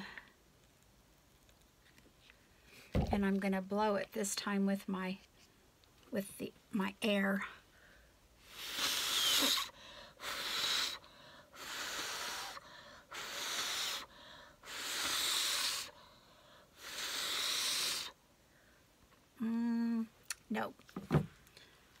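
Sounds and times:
woman blowing hard: 8.4 - 16.0, 16.7 - 18.2.

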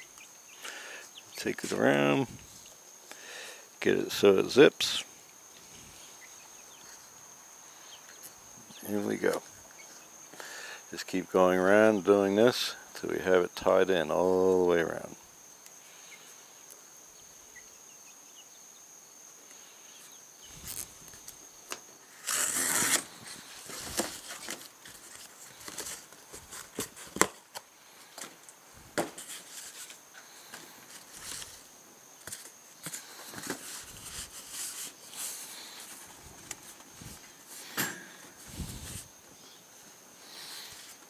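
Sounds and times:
cardboard scraping and rustling: 22.1 - 27.5, 29.0 - 31.6, 32.2 - 39.1.

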